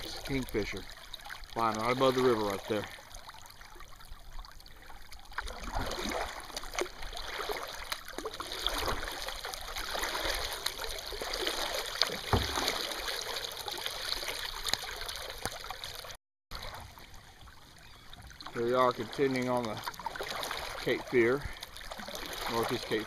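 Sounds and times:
paddle splashing water: 0.0 - 23.0
paddle knock: 11.5 - 13.2.

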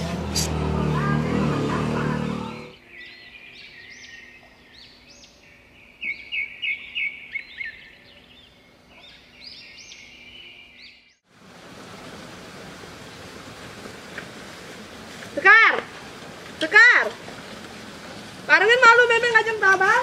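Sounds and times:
small birds chirping: 2.2 - 11.2
steady hiss: 11.3 - 19.9.

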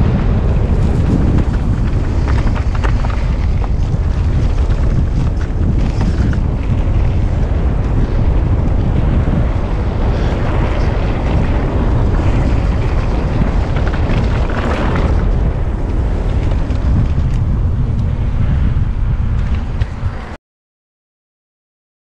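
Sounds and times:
mountain bike riding noise: 0.0 - 20.4
wind buffeting microphone: 0.0 - 20.4.

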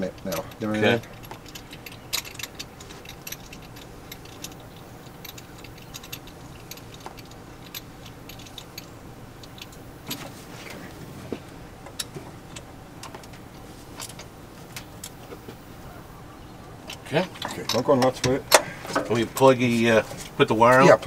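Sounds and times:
metallic clicks of tools: 0.1 - 9.8.

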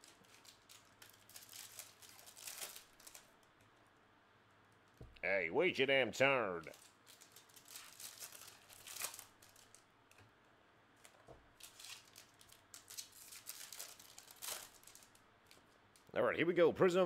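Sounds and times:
card packaging crinkling and tearing: 0.0 - 3.4, 6.6 - 9.8, 11.0 - 16.1.

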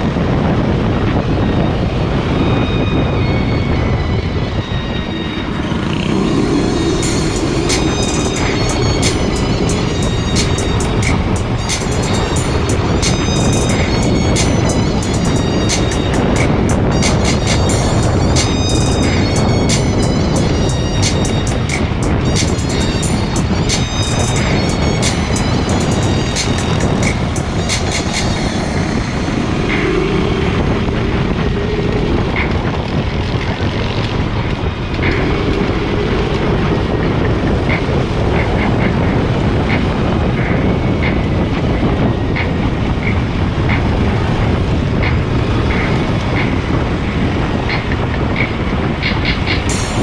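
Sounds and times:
go-kart engine running: 5.4 - 20.0.

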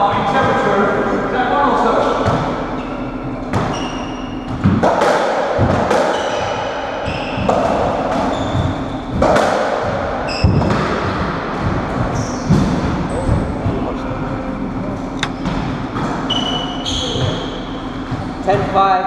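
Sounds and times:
ball hitting walls and floor: 2.0 - 13.8, 15.1 - 18.5
shoes squeaking on floor: 2.8 - 4.8, 6.0 - 9.2, 10.2 - 11.2, 12.0 - 13.3, 15.1 - 18.4
ball struck by rackets: 4.4 - 6.8, 7.4 - 13.0.

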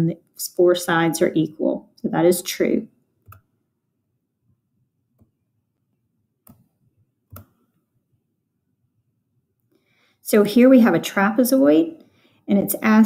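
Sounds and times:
computer mouse clicks: 3.2 - 3.5, 6.4 - 6.7, 7.3 - 7.6.

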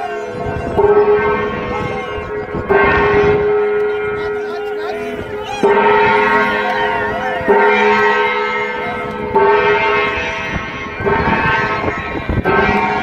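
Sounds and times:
brass gong ringing: 0.0 - 13.0.

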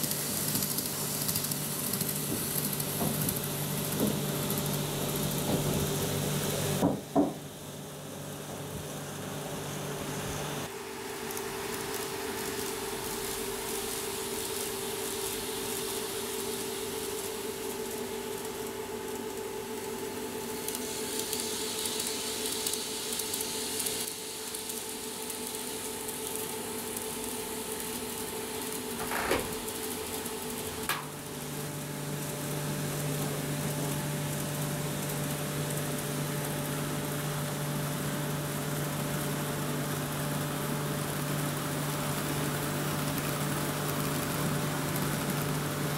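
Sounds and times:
low steady train hum: 0.0 - 4.7
model train motor whine: 0.0 - 6.9, 10.0 - 45.9.

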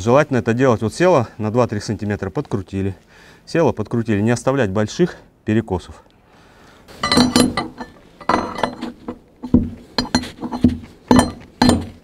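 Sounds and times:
steel bar clinking on screw jack: 7.0 - 12.0.

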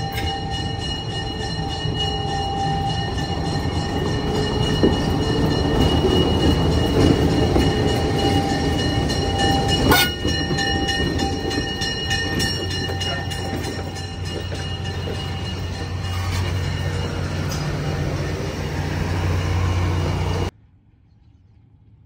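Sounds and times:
train wheels on rails: 0.0 - 20.5
diesel locomotive engine running: 0.0 - 20.6.

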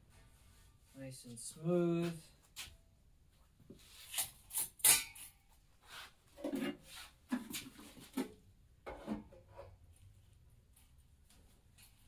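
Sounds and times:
metal tools scraping and knocking: 4.1 - 5.4.

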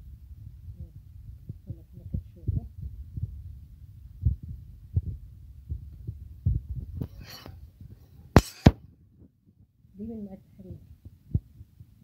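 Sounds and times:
whisk scraping hiss: 7.0 - 7.6.

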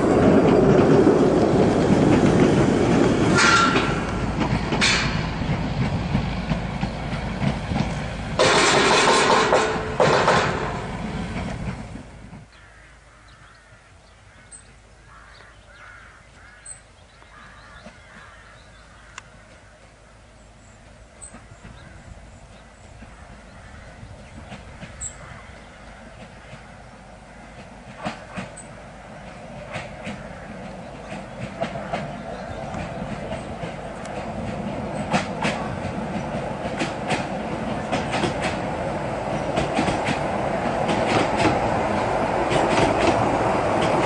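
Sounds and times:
tram wheels rumbling on rails: 0.0 - 13.4, 14.1 - 44.0
birds chirping: 12.5 - 40.7.

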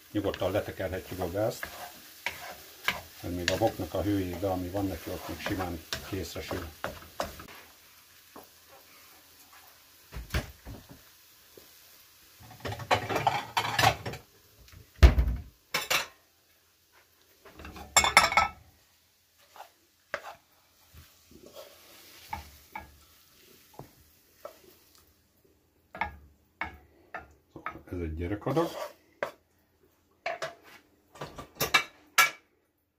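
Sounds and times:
wooden spatula scraping pan: 0.2 - 7.8, 19.3 - 24.8, 26.0 - 29.4
dishes clattering: 12.5 - 14.2, 17.6 - 18.6.

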